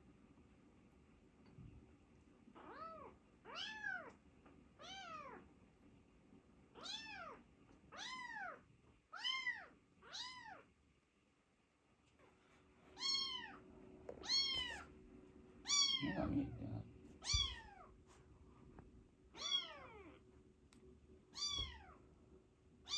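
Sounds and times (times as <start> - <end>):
kitten meowing: 2.6 - 4.2, 4.8 - 5.4, 6.8 - 10.7, 13.0 - 13.6, 14.2 - 14.9, 15.6 - 16.6, 17.2 - 17.9, 19.4 - 20.2, 21.3 - 22.0.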